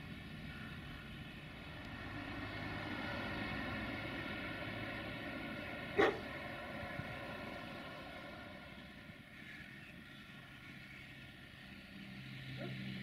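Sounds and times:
distant engine hum: 0:00.0 - 0:13.0
dog bark: 0:06.0 - 0:06.3, 0:12.6 - 0:12.9.

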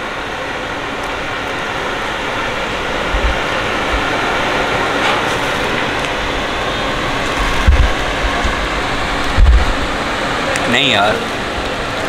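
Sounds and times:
busy street noise: 0:00.0 - 0:12.0
low thumps: 0:07.4 - 0:08.7, 0:09.3 - 0:09.8.

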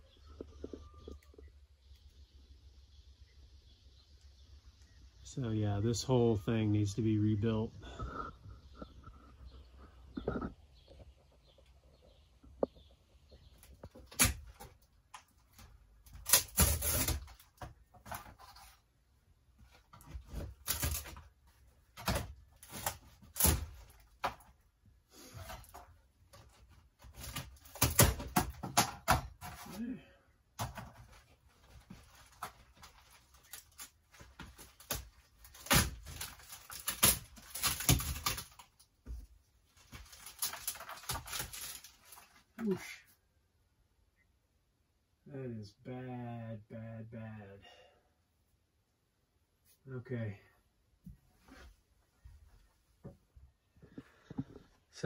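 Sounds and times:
wood cracking and tearing: 0:13.5 - 0:18.8, 0:19.6 - 0:24.6, 0:25.2 - 0:29.9, 0:30.6 - 0:42.8.

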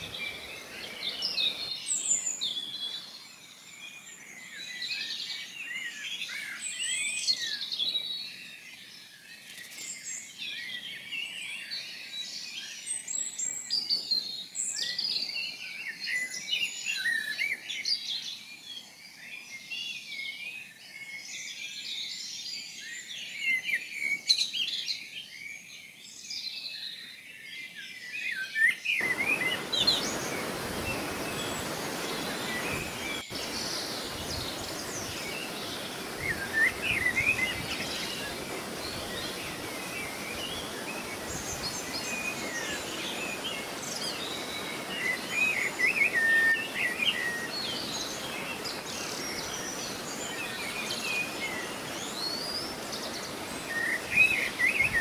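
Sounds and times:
waterfall rushing: 0:00.0 - 0:02.0, 0:29.0 - 0:55.0
songbirds chirping and trilling: 0:00.0 - 0:55.0.

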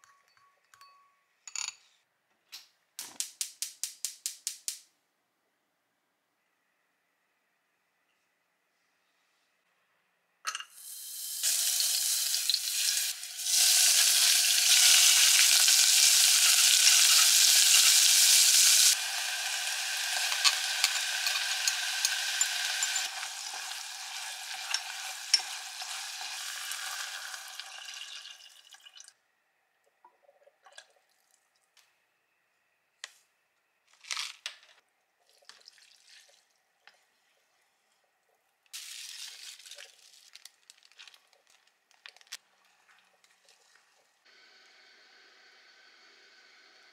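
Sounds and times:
meat sizzling in a pot: 0:10.8 - 0:28.6, 0:38.8 - 0:39.6.

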